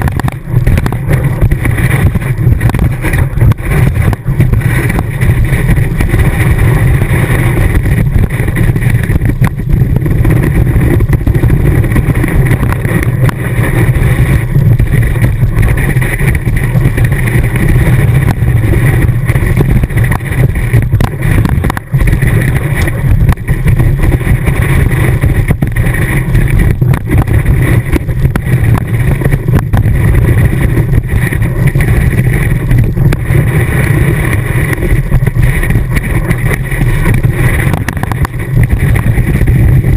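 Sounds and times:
rushing wind: 0:00.0 - 0:39.9
ski vibrating on snow: 0:00.0 - 0:39.9.

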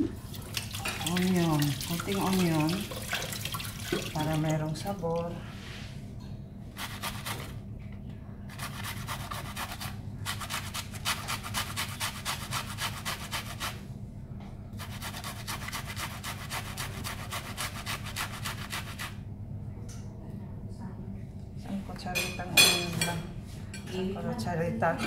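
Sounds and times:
onion rasping on metal grater: 0:06.8 - 0:07.5, 0:08.5 - 0:13.8, 0:14.8 - 0:19.2.

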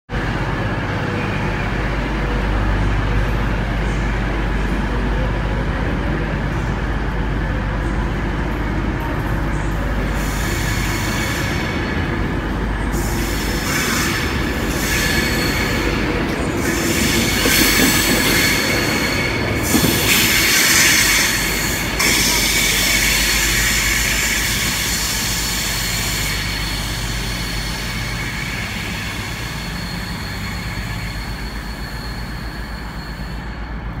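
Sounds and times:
electric train low rumble: 0:00.1 - 0:34.0
high wheel squeal: 0:10.0 - 0:34.0.

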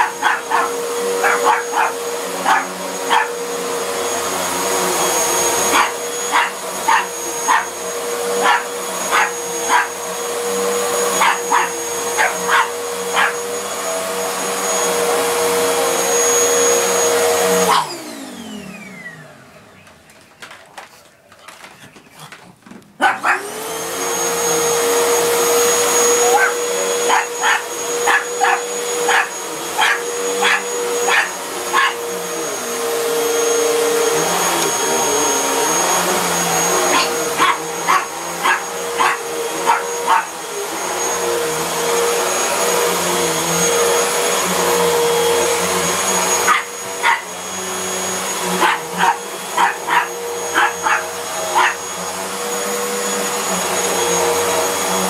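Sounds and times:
dog barking: 0:00.0 - 0:03.4, 0:05.7 - 0:07.8, 0:08.4 - 0:09.9, 0:11.2 - 0:13.4, 0:17.7 - 0:17.9, 0:23.0 - 0:23.5, 0:26.2 - 0:32.0, 0:36.9 - 0:40.4, 0:46.4 - 0:47.3, 0:48.6 - 0:51.8
vacuum cleaner humming and whining: 0:00.0 - 0:22.0, 0:23.1 - 0:55.0.

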